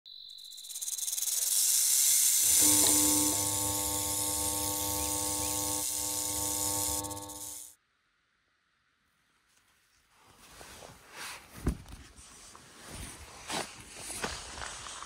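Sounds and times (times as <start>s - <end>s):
steady electrical hum: 2.3s - 7.7s.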